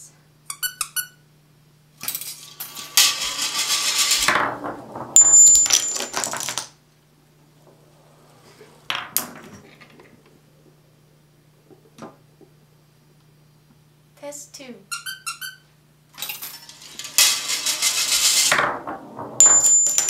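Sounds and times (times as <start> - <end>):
dominoes toppling: 2.1 - 6.8, 16.2 - 20.0
marble rolling on plastic track: 2.4 - 6.8, 7.6 - 10.3, 16.2 - 20.0
high metallic ring: 5.2 - 6.2, 19.4 - 20.0.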